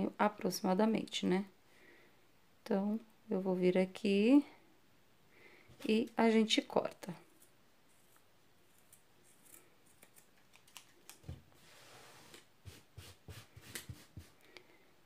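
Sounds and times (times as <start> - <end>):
scissors snipping yarn: 7.3 - 11.2.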